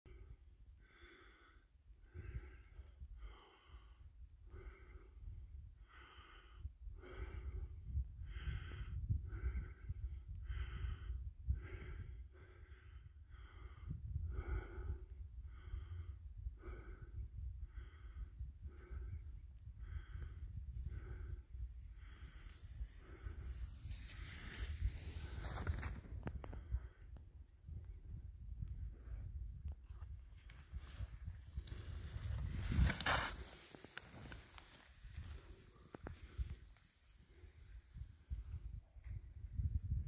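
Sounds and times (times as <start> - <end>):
wind on microphone: 7.0 - 33.6, 37.8 - 40.0.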